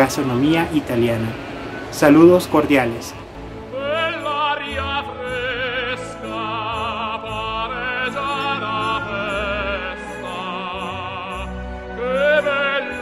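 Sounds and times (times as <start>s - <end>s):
orchestral accompaniment: 0.2s - 13.0s
operatic singing: 3.1s - 13.0s.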